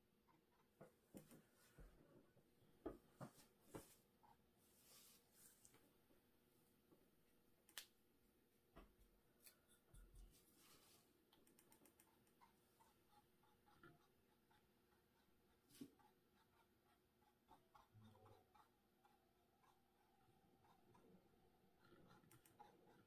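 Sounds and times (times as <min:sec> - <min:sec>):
paintbrush scratching and dabbing: 0:03.3 - 0:05.7, 0:09.6 - 0:23.0
faint sharp clicks: 0:07.7 - 0:07.9.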